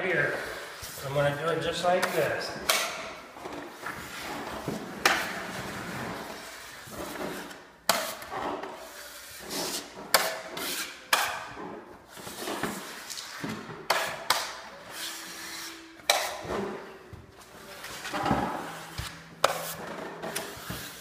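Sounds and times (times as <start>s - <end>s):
taping knife scraping drywall tape: 6.4s - 11.5s, 12.4s - 16.4s, 18.9s - 21.0s.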